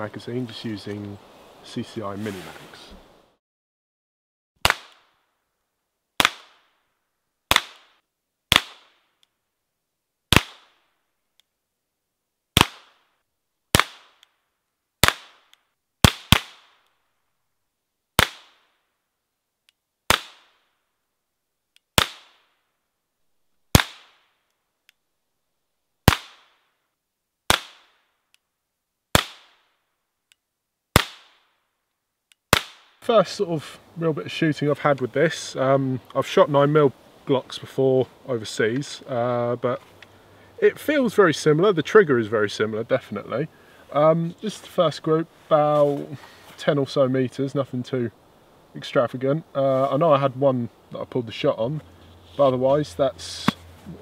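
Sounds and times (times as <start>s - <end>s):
pistol shots cracking: 4.6s - 5.1s, 6.2s - 6.7s, 7.5s - 9.0s, 10.3s - 10.8s, 12.6s - 13.0s, 13.7s - 14.2s, 15.0s - 16.8s, 18.2s - 18.6s, 22.0s - 22.4s, 23.7s - 24.2s, 26.0s - 26.6s, 27.5s - 27.9s, 29.1s - 29.6s, 30.9s - 31.4s, 32.5s - 33.0s.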